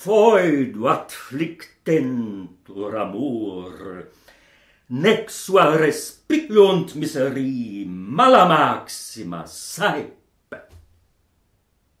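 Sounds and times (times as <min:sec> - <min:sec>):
man reciting: 0:00.0 - 0:04.2, 0:04.9 - 0:10.6
mouth or breath sound: 0:04.1 - 0:04.9.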